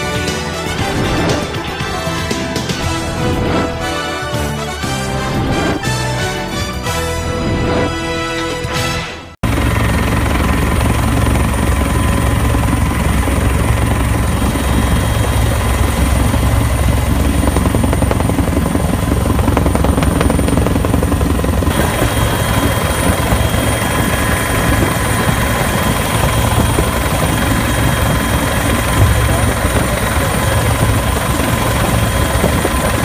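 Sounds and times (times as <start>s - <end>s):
helicopter rotor and engines: 0.0s - 33.0s
thin steady whines: 9.5s - 33.0s.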